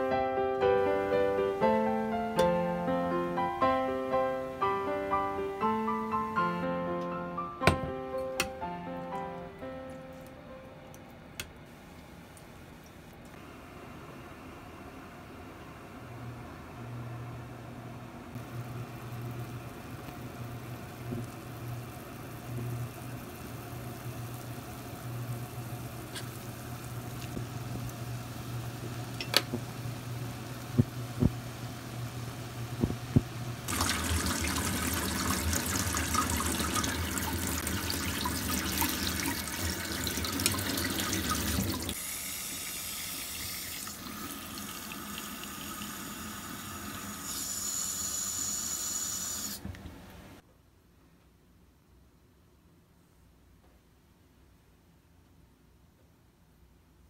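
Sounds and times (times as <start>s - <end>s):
water at a rolling boil: 11.4s - 50.4s
tap water pouring into glass bowl: 33.7s - 42.0s.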